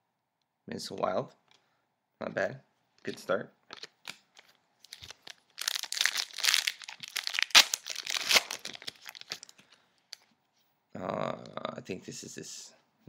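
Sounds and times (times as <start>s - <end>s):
foil wrapper tearing and crinkling: 4.8s - 9.5s.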